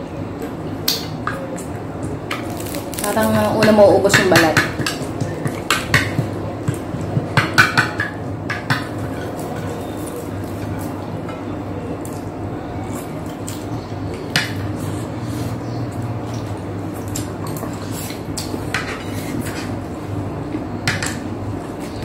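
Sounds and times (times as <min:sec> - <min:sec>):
steady low hum: 0:00.0 - 0:22.0
chewing crispy meat: 0:12.0 - 0:18.7.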